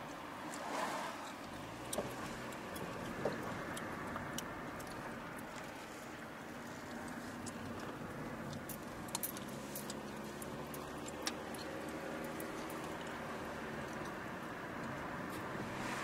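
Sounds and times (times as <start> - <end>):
engine hum and road noise: 0.0 - 16.0.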